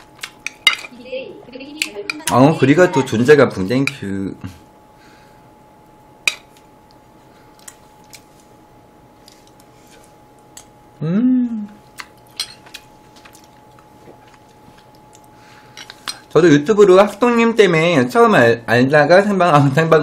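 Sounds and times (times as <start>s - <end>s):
person humming: 11.0s - 11.8s
person chewing food: 11.7s - 16.0s.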